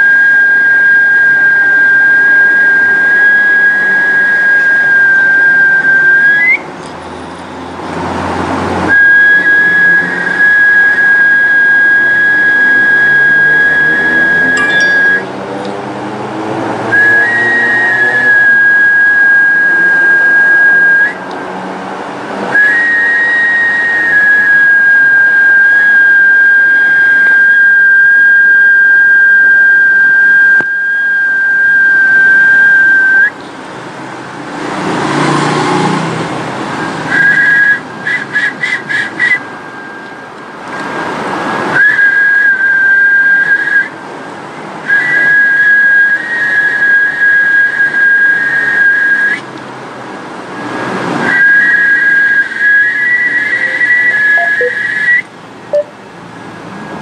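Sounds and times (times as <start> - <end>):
high steady whistle: 0.0 - 6.7, 8.9 - 15.4, 16.9 - 21.2, 22.5 - 33.4, 36.8 - 40.3, 41.7 - 44.0, 44.8 - 49.5, 50.6 - 55.9
short whistle pulses: 0.0 - 6.7, 8.9 - 15.3, 16.9 - 21.3, 22.6 - 33.4, 36.8 - 40.2, 41.7 - 44.0, 44.8 - 49.5, 50.6 - 55.9.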